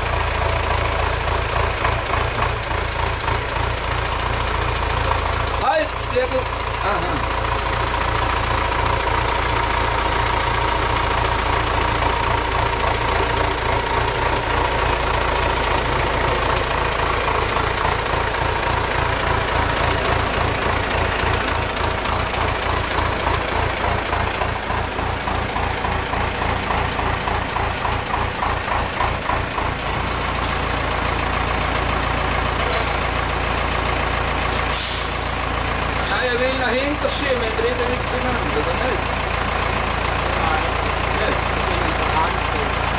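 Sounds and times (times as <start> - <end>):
tractor diesel engine running: 0.0 - 42.9
short hiss: 34.4 - 35.6.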